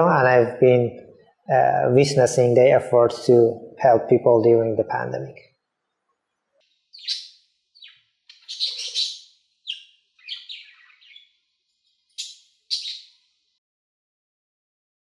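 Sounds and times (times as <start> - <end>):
budgerigar chirping: 6.9 - 11.4, 12.1 - 13.2.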